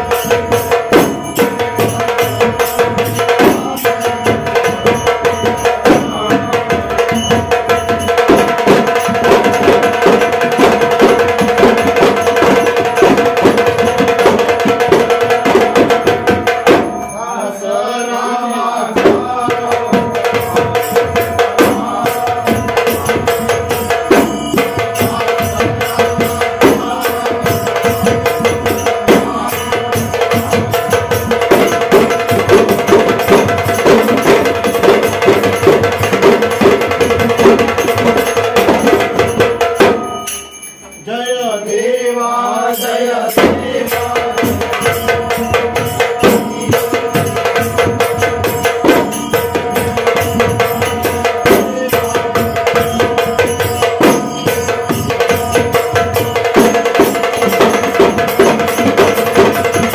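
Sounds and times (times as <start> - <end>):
stick-beaten drum: 0.0 - 17.2, 18.9 - 41.1, 43.3 - 59.9
clay-pot drums: 0.0 - 17.3, 18.8 - 59.9
group chanting: 17.1 - 30.5, 41.6 - 47.1.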